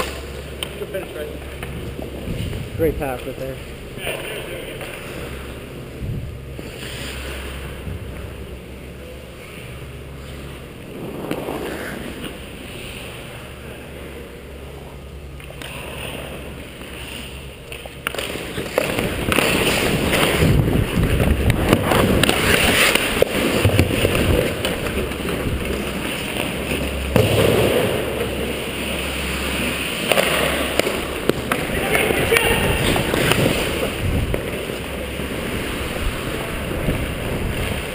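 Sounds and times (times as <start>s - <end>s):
skate blades scraping ice: 0.0s - 3.3s, 4.0s - 37.9s
wind rushing over microphone: 19.9s - 22.5s, 32.6s - 34.4s.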